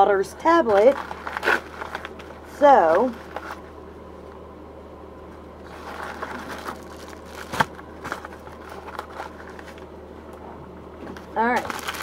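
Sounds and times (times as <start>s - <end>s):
padded mailer crinkling and tearing: 0.6s - 3.7s, 5.6s - 9.9s, 11.6s - 12.0s
packaging cracking: 0.8s - 2.3s, 5.8s - 9.8s, 11.6s - 12.0s.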